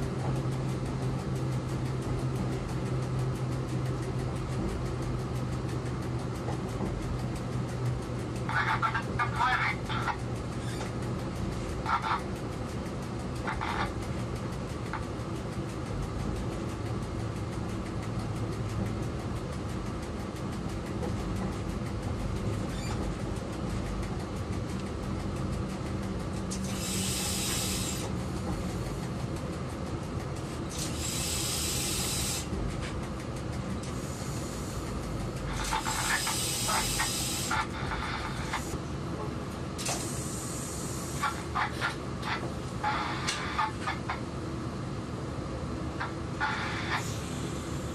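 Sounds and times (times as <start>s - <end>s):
diesel locomotive engine drone: 0.0s - 47.9s
train track noise: 0.0s - 47.9s
air hiss bursts: 36.0s - 37.5s, 39.8s - 41.2s.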